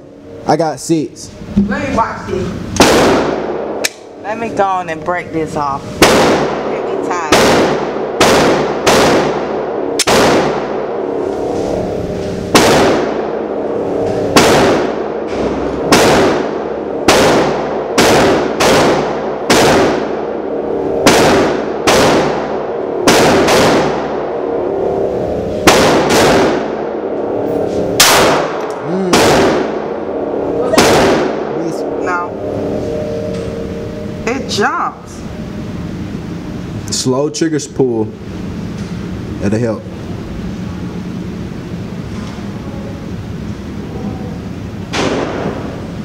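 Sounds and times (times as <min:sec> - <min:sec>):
pistol shots echoing indoors: 0:02.8 - 0:04.1, 0:06.0 - 0:11.2, 0:12.5 - 0:13.7, 0:14.3 - 0:24.9, 0:25.6 - 0:32.0, 0:44.9 - 0:45.8.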